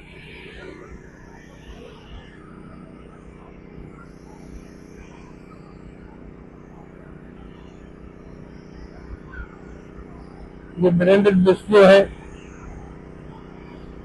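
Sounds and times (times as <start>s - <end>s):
low outdoor hum: 0.0s - 14.0s
faint distant voices: 0.1s - 14.0s.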